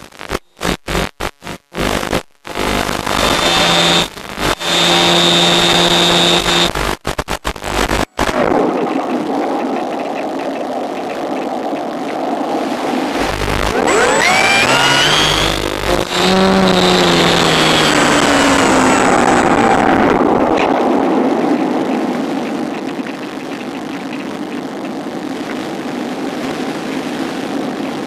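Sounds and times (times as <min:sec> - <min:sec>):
crackling signal dropouts: 0:00.0 - 0:28.0
electric motor whine: 0:01.8 - 0:06.8, 0:13.1 - 0:20.2.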